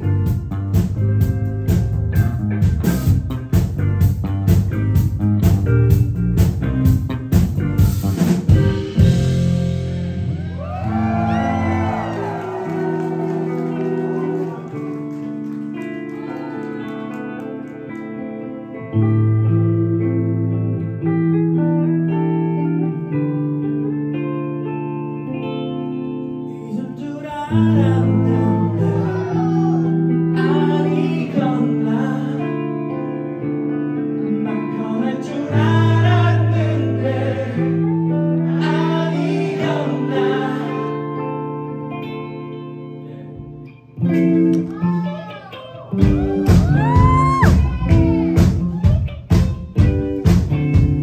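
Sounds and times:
sustained guitar chords: 0.0 - 16.2, 16.8 - 51.0
person singing: 26.5 - 33.4, 34.0 - 42.0, 44.6 - 50.2.

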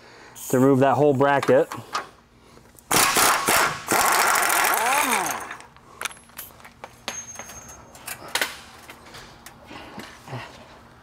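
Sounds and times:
pneumatic wrench running: 2.9 - 5.6
metallic clinks of tools: 7.1 - 8.2.

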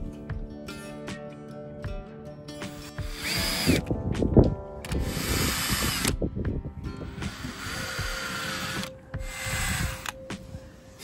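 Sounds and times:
cordless drill boring into wood: 2.8 - 3.9, 4.9 - 6.2, 7.1 - 10.2.

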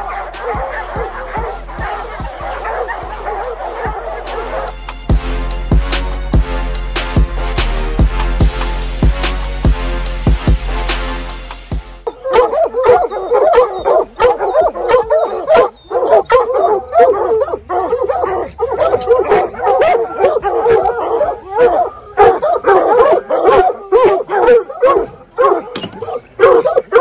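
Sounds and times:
hounds baying and yelping: 0.0 - 5.2, 12.0 - 27.0.

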